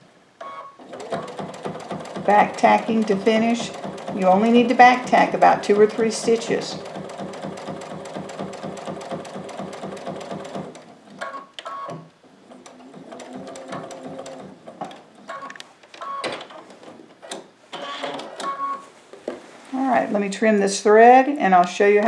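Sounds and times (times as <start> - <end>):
sewing machine stitching: 0.8 - 10.9, 12.5 - 15.5.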